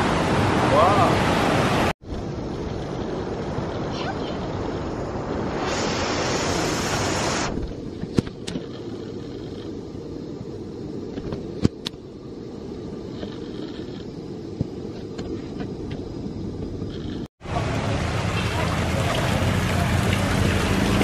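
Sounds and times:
river rushing over rapids: 0.0s - 1.9s.

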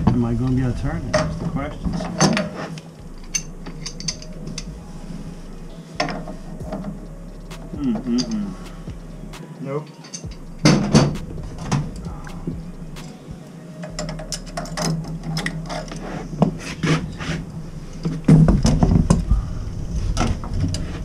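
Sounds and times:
pliers clicking and scraping on metal: 2.1s - 4.7s.

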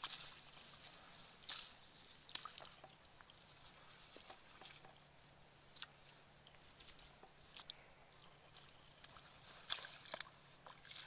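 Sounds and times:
bare feet splashing in water: 0.0s - 5.0s, 8.5s - 11.0s.

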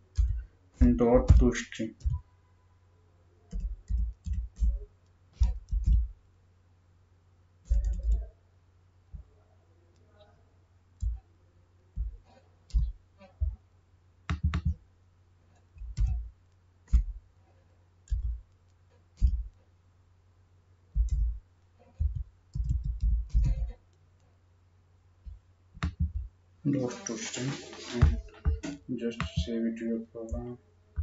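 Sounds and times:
keyboard keystrokes: 7.7s - 8.3s.

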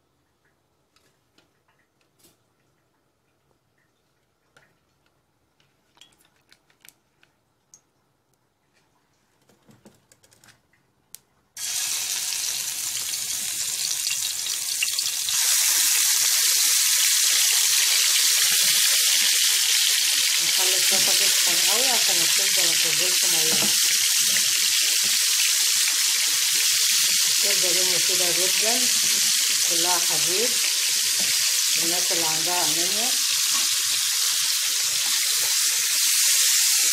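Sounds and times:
liver sizzling in hot oil: 11.6s - 36.9s.

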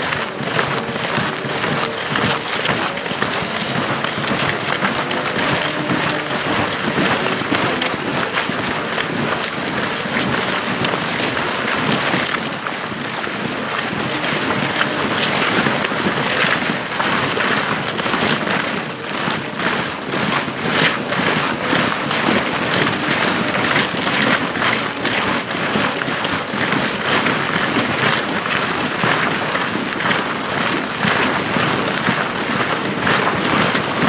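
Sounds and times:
marching boots crunching on snow: 0.6s - 11.4s.

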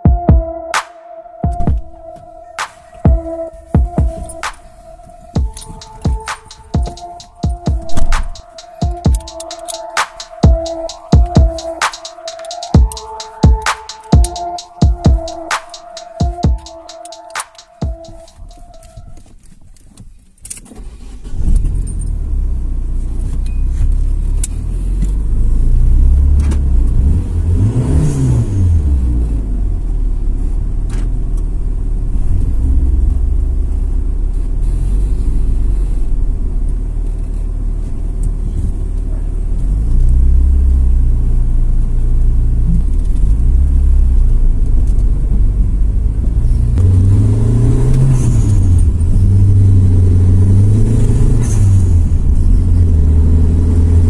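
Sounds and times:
car engine accelerating: 20.9s - 54.0s.

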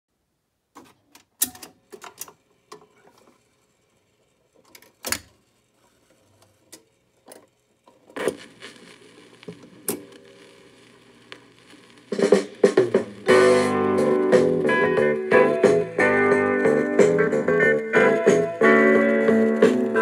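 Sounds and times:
record changer mechanical clicks: 0.8s - 3.2s, 6.4s - 10.2s.

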